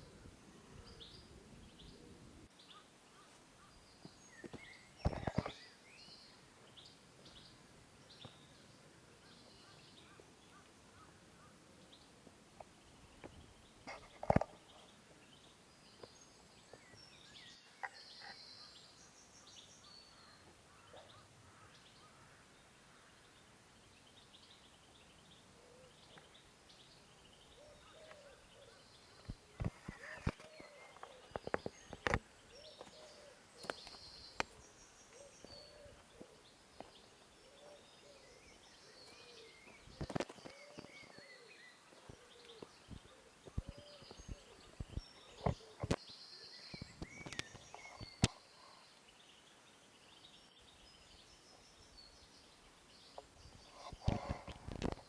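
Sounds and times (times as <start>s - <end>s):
birds chirping and trilling: 0.0s - 55.0s
lower bird calls: 12.8s - 55.0s.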